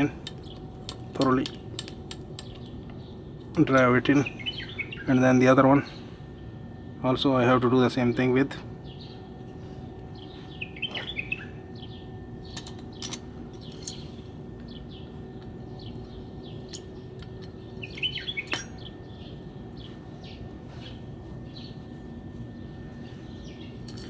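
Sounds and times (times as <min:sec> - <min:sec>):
metal tools clicking on concrete: 0:00.0 - 0:04.0, 0:12.5 - 0:14.1, 0:16.7 - 0:18.9
birds chirping: 0:00.0 - 0:24.0
faint steady hum: 0:00.0 - 0:24.0.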